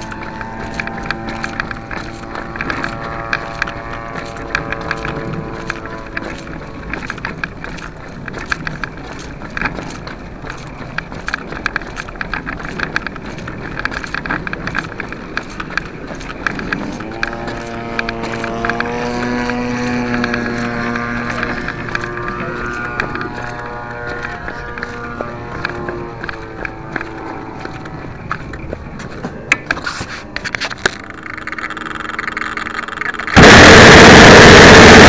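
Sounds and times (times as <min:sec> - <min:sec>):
model airplane gas engine running: 0:00.0 - 0:09.2, 0:12.1 - 0:28.2, 0:30.2 - 0:35.0
rattling clicks: 0:30.4 - 0:33.4.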